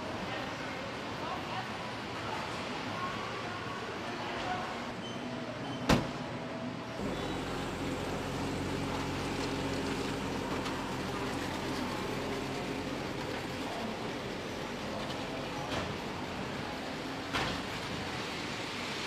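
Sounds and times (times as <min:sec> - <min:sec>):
machinery hum: 0:06.4 - 0:19.0.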